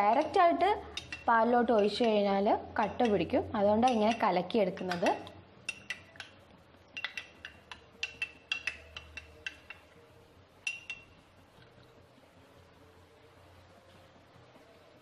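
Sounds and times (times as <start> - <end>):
spoon clinking in glass: 0.2 - 2.2, 3.8 - 6.4, 7.0 - 9.9, 10.6 - 11.2.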